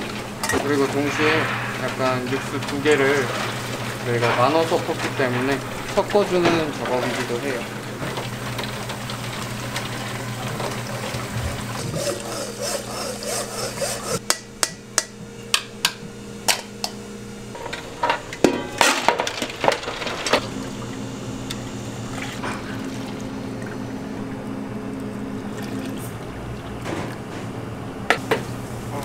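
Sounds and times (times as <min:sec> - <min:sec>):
liquid pouring: 0:00.0 - 0:12.0, 0:22.0 - 0:26.9
kitchen hum: 0:00.0 - 0:29.0.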